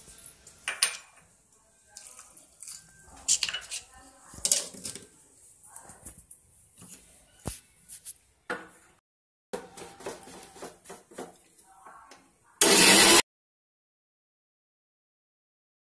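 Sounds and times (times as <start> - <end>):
electric mixer grinder grinding: 12.6 - 13.2.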